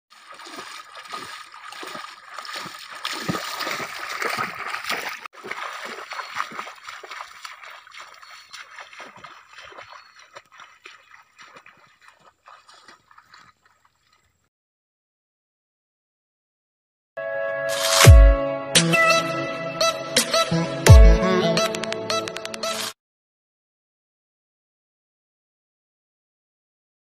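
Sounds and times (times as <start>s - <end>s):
footsteps sloshing through water: 0.1s - 14.5s.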